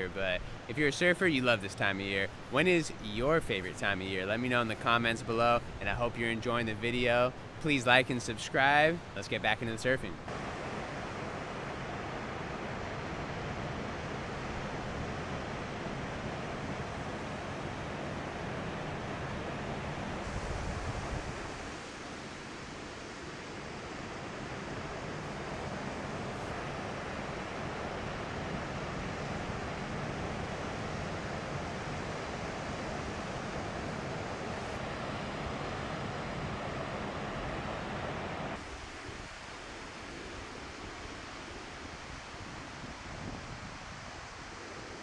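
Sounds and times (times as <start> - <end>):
ocean surf breaking: 0.0 - 45.0
wind on microphone: 10.3 - 22.8, 24.8 - 45.0.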